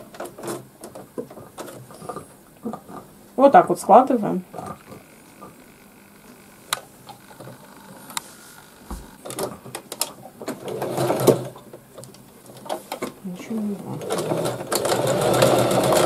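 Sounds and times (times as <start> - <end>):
sewing machine stitching: 9.2 - 11.6, 13.9 - 16.0
sewing machine clicks: 14.0 - 16.0.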